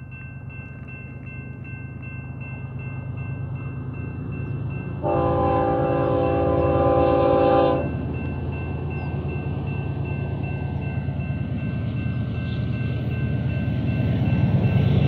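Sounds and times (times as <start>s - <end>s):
crossing bell ringing: 0.0s - 15.0s
diesel locomotive rumble: 0.0s - 15.0s
train air horn blast: 5.0s - 7.9s.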